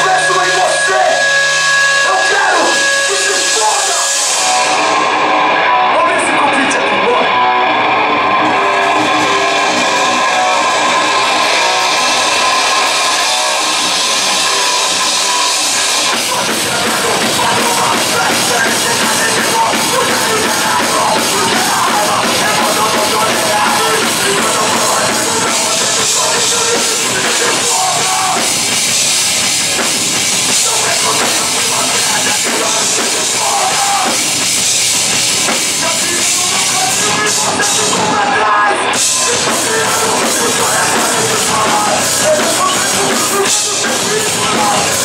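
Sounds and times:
fast drumming with cymbals: 0.0 - 5.2, 8.7 - 45.0
bass guitar: 0.0 - 45.0
distorted electric guitar: 0.0 - 45.0
vocals into microphone: 0.0 - 45.0.

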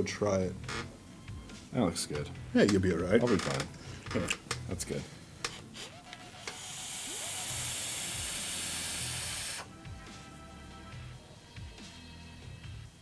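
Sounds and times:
vape draw hissing: 5.8 - 9.7.

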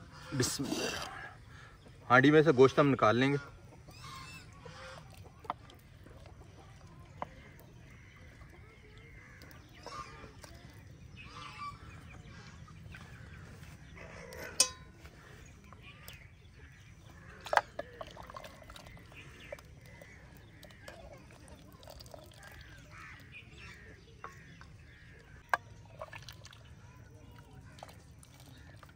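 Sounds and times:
metal utensil clanking on pot: 14.3 - 15.0
sharp ringing clang: 14.5 - 14.9.

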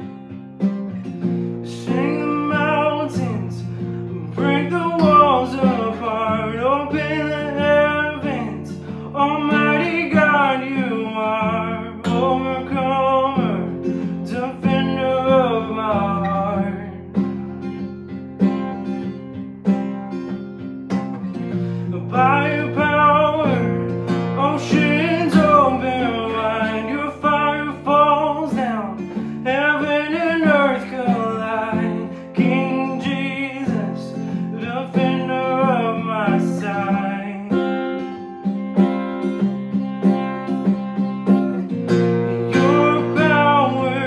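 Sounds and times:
strummed acoustic guitar: 0.0 - 44.0
man singing: 1.6 - 17.3, 21.7 - 38.2, 41.8 - 44.0.

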